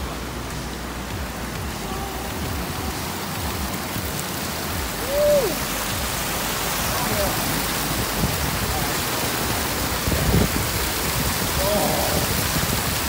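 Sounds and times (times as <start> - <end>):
waterfall rushing over rocks: 0.0 - 13.0.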